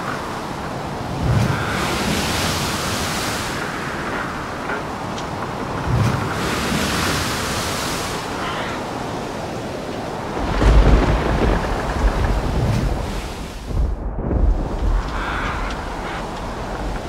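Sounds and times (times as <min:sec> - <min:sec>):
rushing wind: 0:00.0 - 0:17.0
heavy low rumble: 0:10.4 - 0:17.0.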